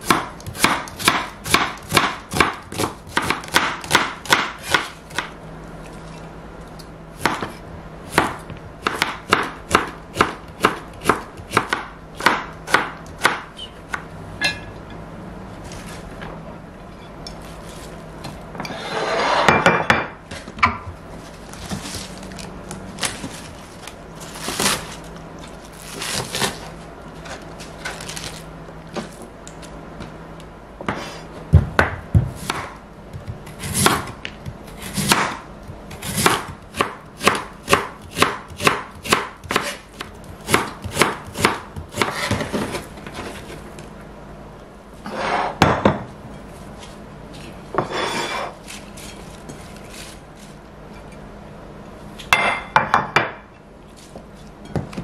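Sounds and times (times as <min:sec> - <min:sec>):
knife chopping on cutting board: 0:00.0 - 0:05.3, 0:07.2 - 0:14.0, 0:30.9 - 0:42.9
food scraping across dish: 0:18.6 - 0:19.6, 0:45.0 - 0:45.6, 0:47.8 - 0:49.3.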